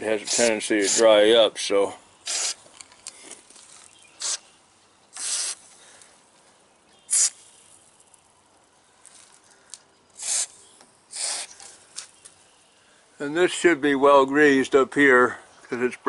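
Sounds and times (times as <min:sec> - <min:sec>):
aerosol can hissing: 0:00.2 - 0:01.1, 0:02.2 - 0:02.6, 0:04.2 - 0:04.4, 0:05.1 - 0:05.7, 0:07.1 - 0:07.6, 0:10.2 - 0:11.6.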